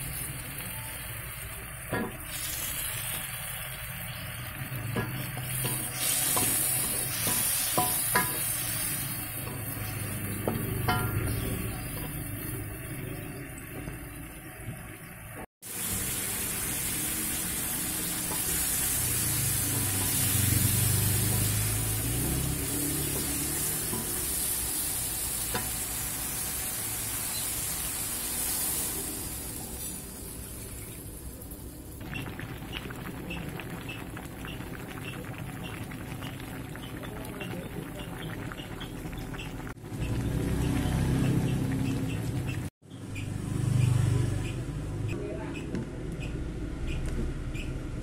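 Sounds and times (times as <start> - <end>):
food sizzling in a wok: 0.0 - 42.3
spatula stirring in a wok: 1.9 - 12.8, 16.8 - 29.0.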